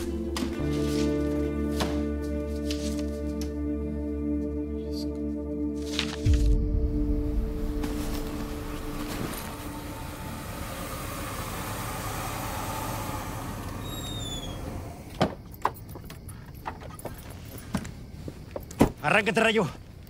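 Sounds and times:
car engine running: 7.0s - 15.1s.

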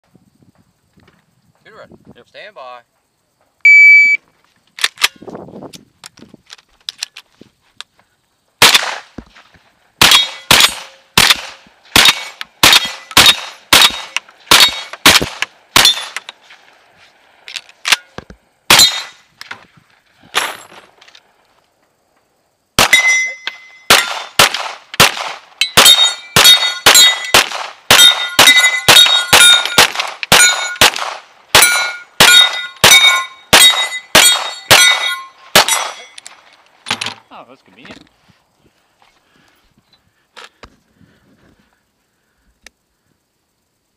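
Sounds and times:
pistol shots: 8.6s - 9.2s, 10.0s - 16.3s, 18.7s - 19.2s, 22.8s - 36.2s
rifle shots: 8.6s - 9.2s, 10.0s - 16.3s, 18.7s - 19.2s, 22.8s - 36.2s
ring of hit steel target: 22.8s - 24.2s, 25.6s - 31.0s, 31.6s - 36.2s.

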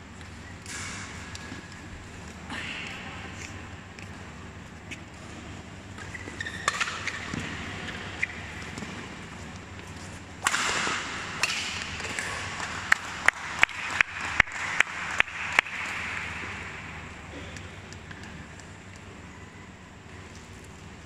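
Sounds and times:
racket hitting shuttlecock: 6.0s - 9.8s, 10.4s - 18.4s
sharp evenly spaced claps: 10.4s - 17.2s.

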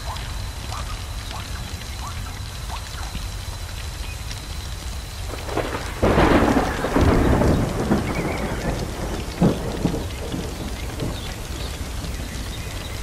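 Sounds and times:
steady crackling background: 0.0s - 13.0s
sharp thunder crack: 5.3s - 13.0s
thunderclap rolling: 5.3s - 13.0s.

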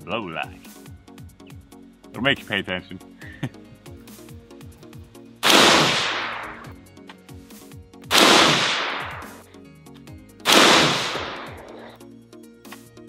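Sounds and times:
background music: 0.0s - 13.0s
rifle shots with echo: 5.4s - 6.8s, 8.1s - 9.4s, 10.5s - 12.0s.

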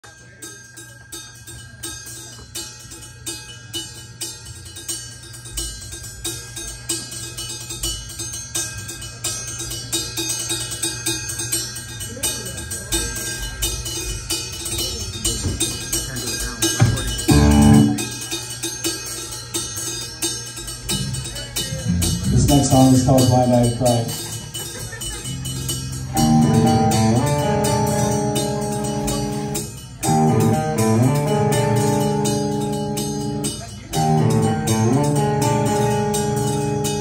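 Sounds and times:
drummer striking cymbal rhythm: 0.4s - 37.0s
rock band loud chord: 16.8s - 18.2s, 26.0s - 37.0s
amplifier hum: 17.2s - 18.1s.

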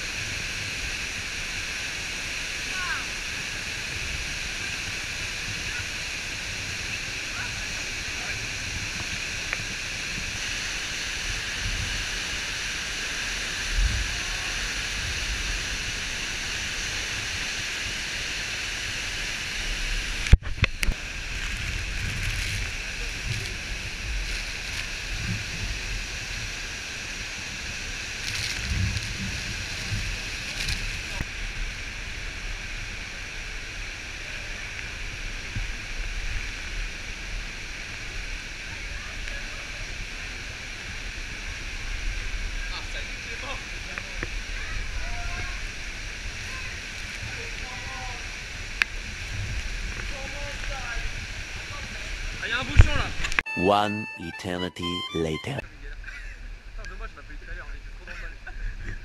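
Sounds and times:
waterfall rushing: 0.0s - 35.2s.

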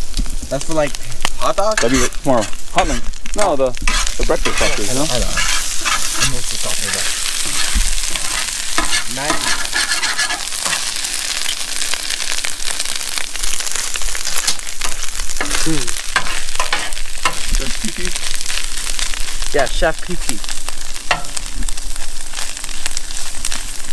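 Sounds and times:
meat sizzling in a frying pan: 0.0s - 23.9s.

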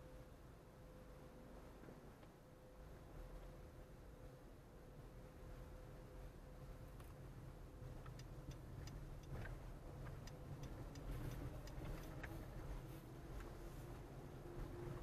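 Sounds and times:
engine and road noise: 0.0s - 15.0s
turn signal ticking: 6.9s - 15.0s.

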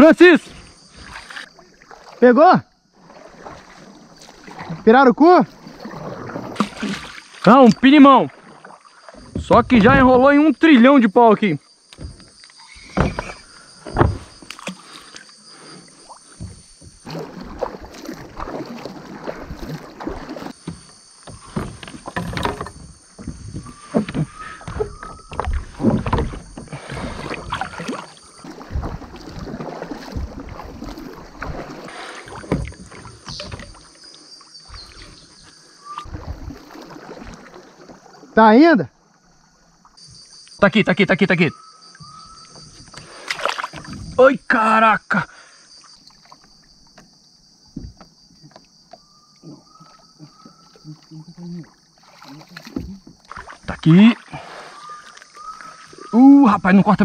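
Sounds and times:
paddle splashes: 0.0s - 57.0s
water sloshing: 0.0s - 57.0s
faint thin whistle: 35.8s - 36.1s.

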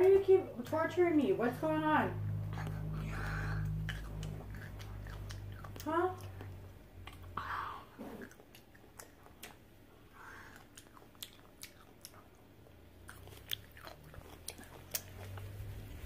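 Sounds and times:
mouth smacking: 2.4s - 12.4s, 13.0s - 15.5s
pickle being chewed: 2.6s - 7.4s, 8.1s - 15.9s.

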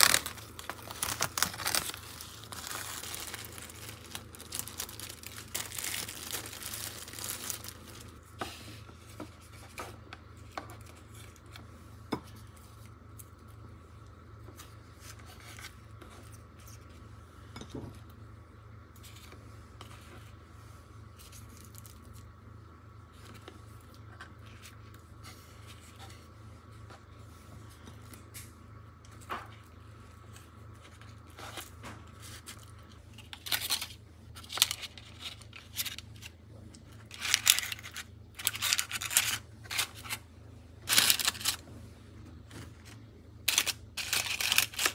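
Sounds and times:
plastic gloves crinkling: 0.0s - 8.2s, 29.9s - 41.7s, 42.4s - 44.9s.

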